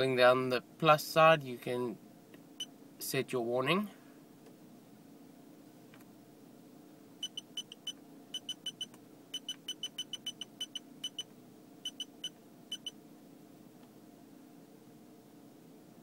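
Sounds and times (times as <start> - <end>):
short high-pitched electronic beeps: 7.2 - 11.3, 11.9 - 13.0.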